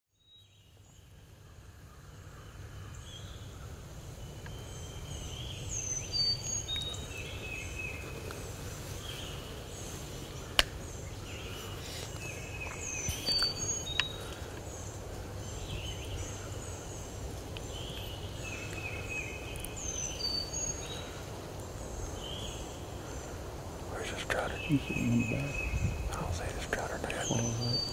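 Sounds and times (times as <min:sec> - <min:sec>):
songbirds singing: 0:00.1 - 0:27.9
steady low rumble: 0:23.7 - 0:27.9.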